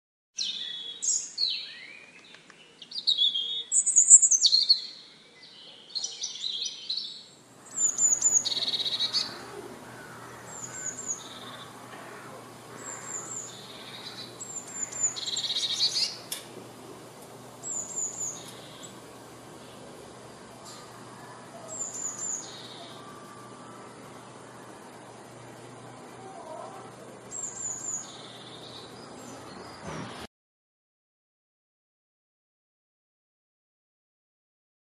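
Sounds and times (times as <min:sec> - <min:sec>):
bird chirping and trilling: 0:00.4 - 0:16.3, 0:17.3 - 0:30.2.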